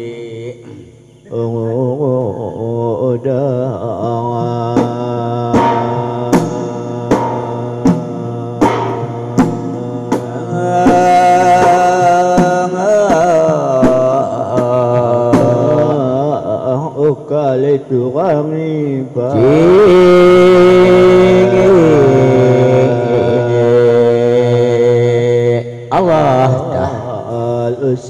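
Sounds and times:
person chanting: 0:00.0 - 0:28.0
sharp drum strokes: 0:04.4 - 0:16.4.

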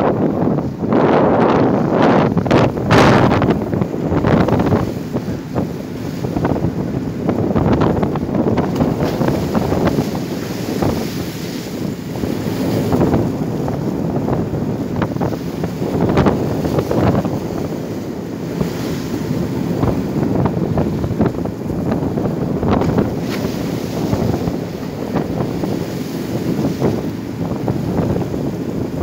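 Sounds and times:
waves breaking along a hull: 0:00.0 - 0:29.0
wind buffeting microphone: 0:00.0 - 0:29.0.

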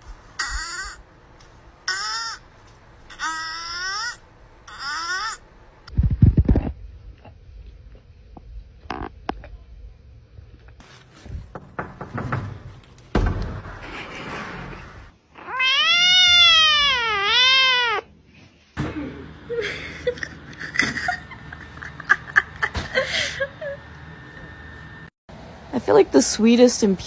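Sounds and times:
kitten meowing: 0:15.4 - 0:18.0.

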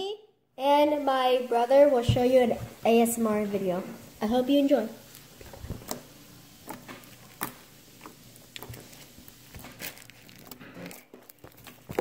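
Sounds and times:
slime squelching and popping: 0:05.0 - 0:12.0.

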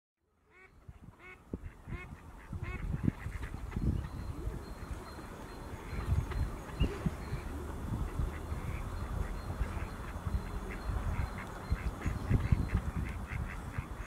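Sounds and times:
waterfowl calling: 0:00.5 - 0:14.0.

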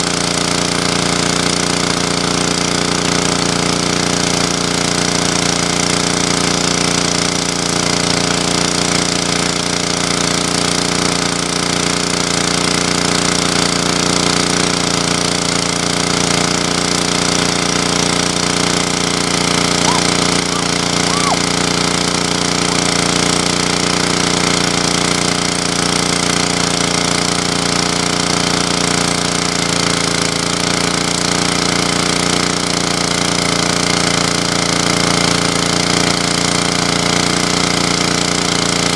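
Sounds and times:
small engine running: 0:00.0 - 0:38.9.

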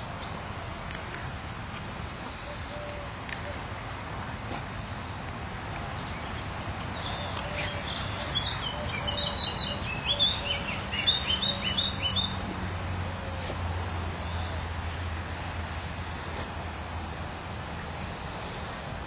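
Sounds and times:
songbird chirping: 0:04.5 - 0:15.2.

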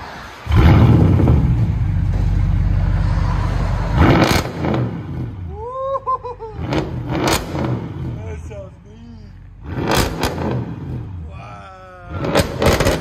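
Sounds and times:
loud raspy car exhaust: 0:00.2 - 0:13.0
exhaust crack on throttle blip: 0:12.2 - 0:13.0.

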